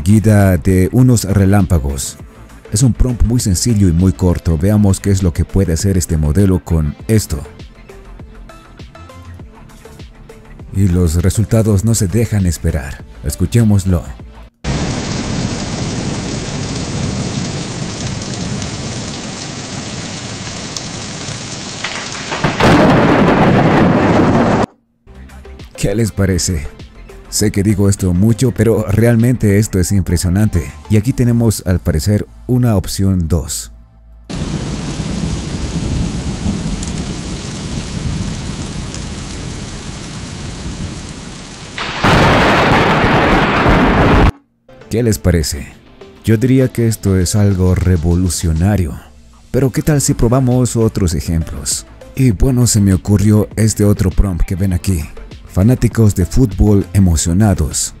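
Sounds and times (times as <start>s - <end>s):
thunder crash: 14.7s - 20.1s, 21.2s - 24.7s, 34.3s - 44.3s
heavy rain falling: 14.7s - 24.7s, 34.3s - 44.3s.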